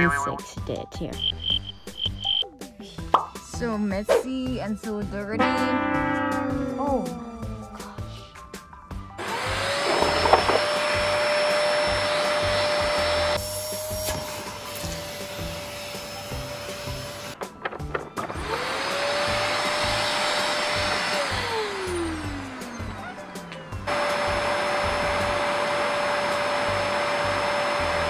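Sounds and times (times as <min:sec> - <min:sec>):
vacuum cleaner whining: 0:09.2 - 0:28.0.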